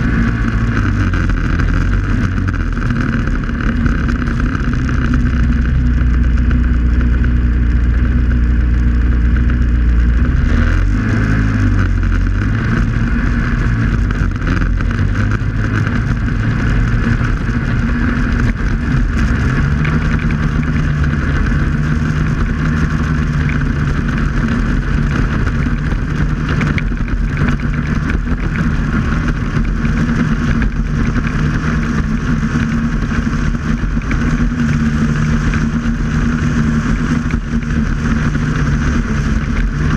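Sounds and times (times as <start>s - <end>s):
snowmobile engine running: 0.0s - 39.9s.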